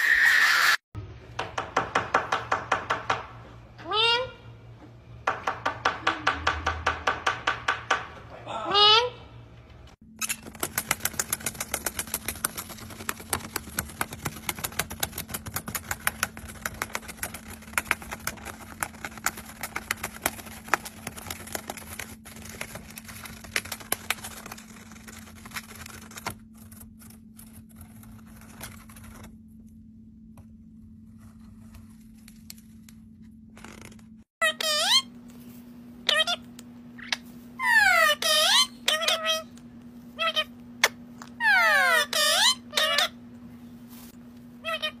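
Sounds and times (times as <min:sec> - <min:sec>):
bird beak shredding paper: 0:10.2 - 0:29.3.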